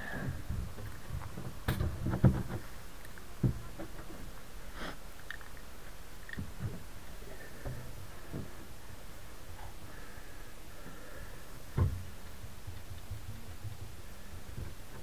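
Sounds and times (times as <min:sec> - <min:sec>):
dull knocks: 0:00.3 - 0:02.7, 0:11.7 - 0:15.0.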